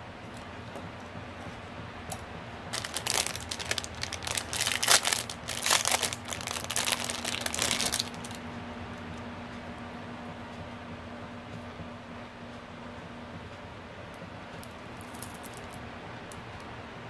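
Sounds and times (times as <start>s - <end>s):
plastic bag crinkling: 2.7s - 8.4s.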